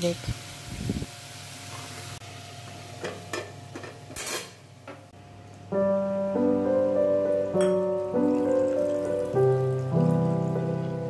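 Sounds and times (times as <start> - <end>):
vegetables sizzling in a wok: 0.0 - 4.8
background music: 5.7 - 11.0.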